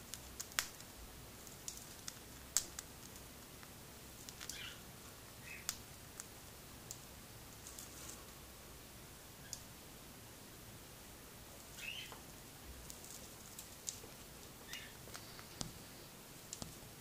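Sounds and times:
bird beak cracking seeds: 0.1 - 4.7, 12.8 - 14.0.

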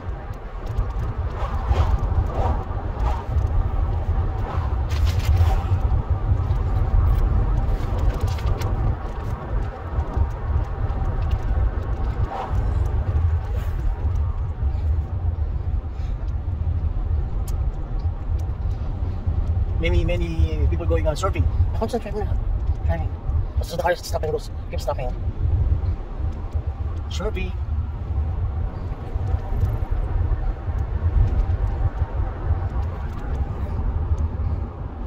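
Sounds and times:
car engine and tyres rumbling: 0.0 - 35.0.

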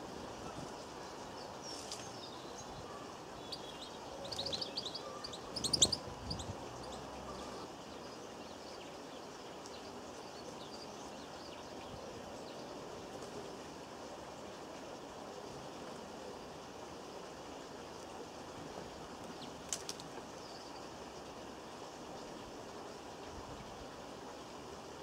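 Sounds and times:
outdoor background hiss: 0.0 - 25.0
birds twittering: 0.4 - 8.8.

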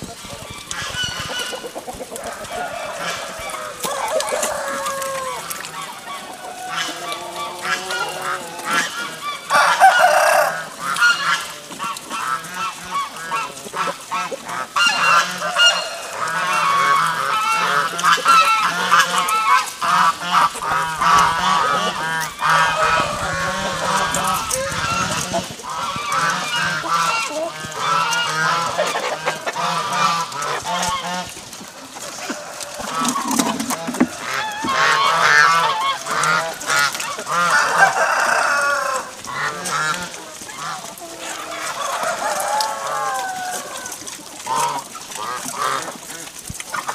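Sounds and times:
chickens clucking: 0.0 - 46.9
pigs squealing and grunting: 0.0 - 46.9.

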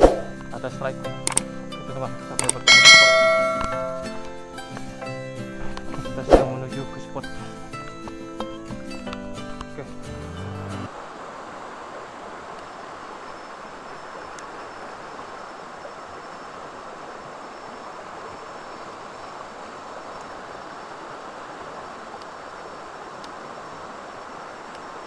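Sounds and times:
stream running over rapids: 2.6 - 4.7, 10.9 - 25.0
faint ticks: 14.3 - 14.6, 20.1 - 20.4, 22.1 - 22.4, 23.2 - 23.4, 24.6 - 24.9.

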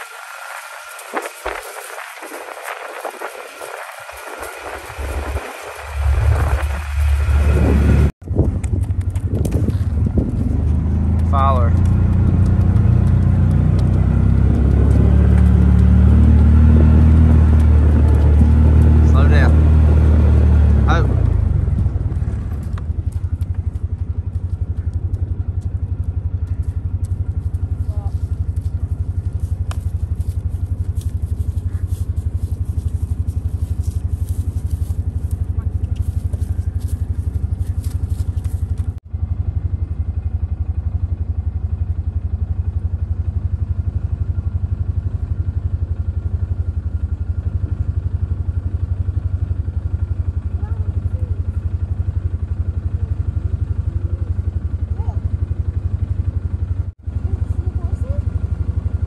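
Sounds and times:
small engine rumbling: 0.0 - 59.0
crackling clicks: 11.1 - 14.1.

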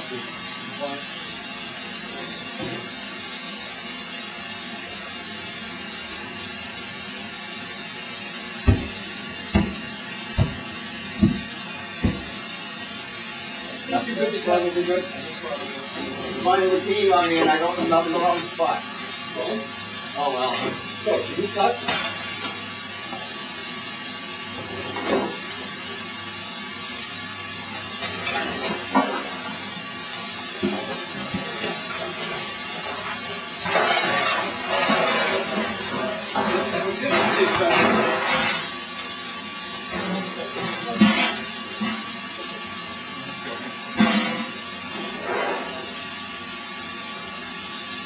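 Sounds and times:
furnace rushing hiss: 0.0 - 48.0
heavy dull thuds on furnace wall: 8.6 - 12.4.

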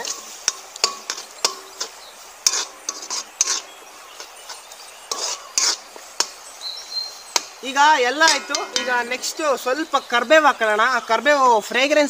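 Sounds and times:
steel ladle scraping a pan: 0.0 - 6.4, 8.2 - 9.5.

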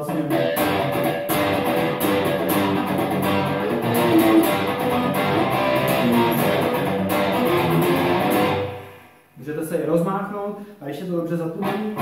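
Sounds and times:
electric guitar power chords: 0.3 - 9.1.

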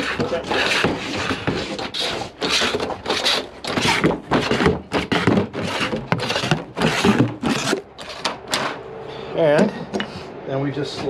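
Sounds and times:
hand seamer scraping sheet metal: 0.0 - 8.8.

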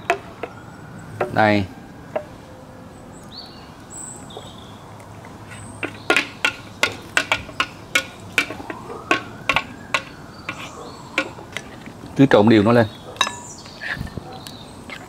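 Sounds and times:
spoon clinking against glass bowl: 13.2 - 13.6.

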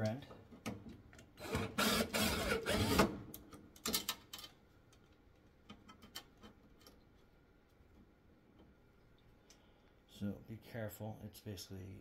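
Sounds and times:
cordless drill running: 1.4 - 3.1.

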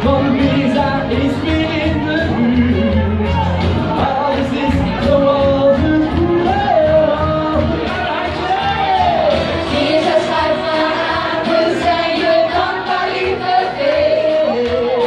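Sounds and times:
upbeat dance music with singing: 0.0 - 15.0.

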